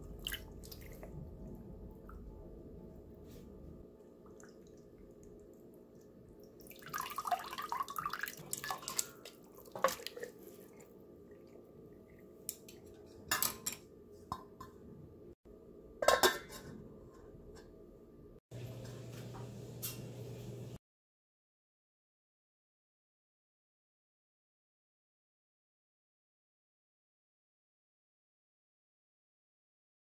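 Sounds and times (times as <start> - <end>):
water sloshing and dripping: 0.0 - 2.3, 3.9 - 12.7.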